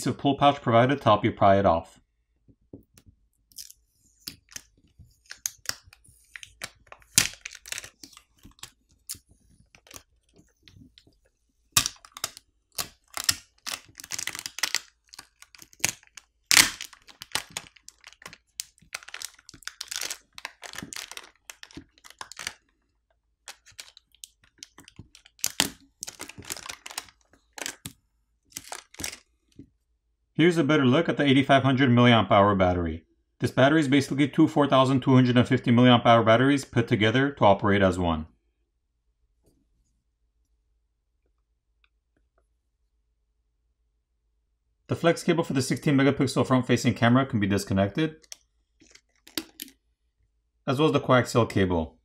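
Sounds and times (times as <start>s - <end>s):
plastic pouch crinkling: 3.5s - 29.4s, 48.2s - 49.8s.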